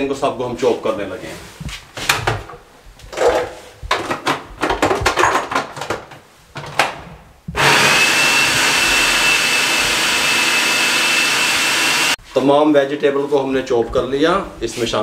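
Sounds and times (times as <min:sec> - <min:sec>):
clicks and knocks: 0:02.1 - 0:07.0
food processor motor whining: 0:07.6 - 0:12.2.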